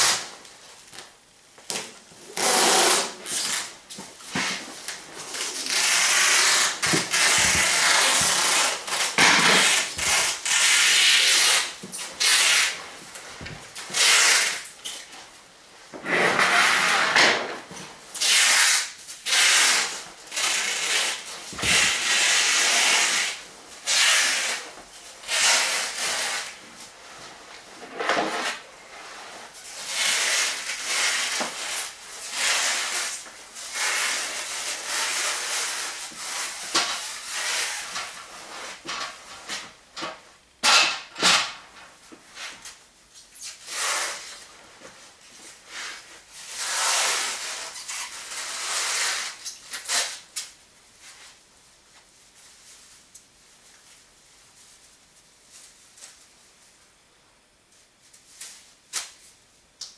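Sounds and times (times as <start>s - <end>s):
plastic sheeting rustling: 0.0s - 39.8s, 43.5s - 56.9s.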